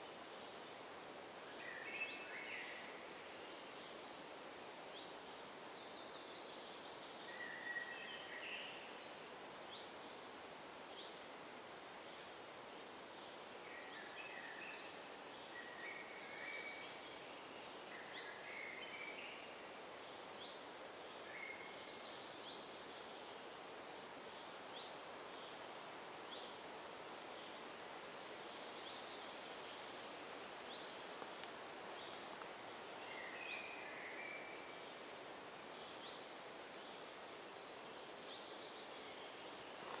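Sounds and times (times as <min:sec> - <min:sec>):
songbirds chirping: 0:00.0 - 0:40.0
steady hiss: 0:00.0 - 0:40.0.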